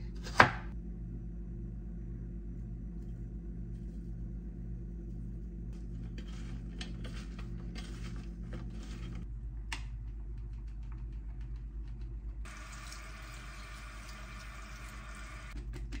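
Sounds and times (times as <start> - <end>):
steady low hum: 0.0 - 16.0
vegetables rustling in metal tray: 5.8 - 9.3.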